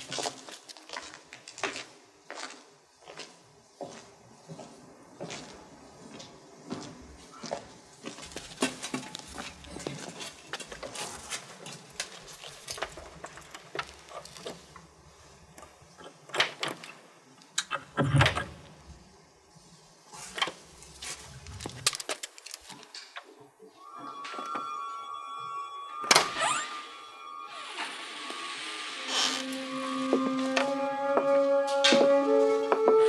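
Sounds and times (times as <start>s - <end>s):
soft music with held tones: 23.7s - 33.0s.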